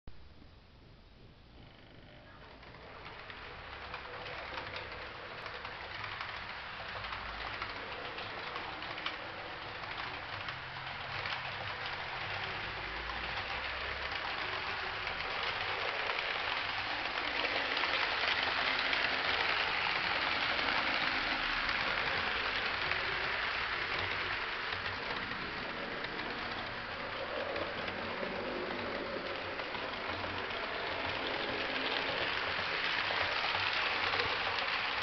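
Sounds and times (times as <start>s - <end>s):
model train rolling on track: 1.5s - 35.0s.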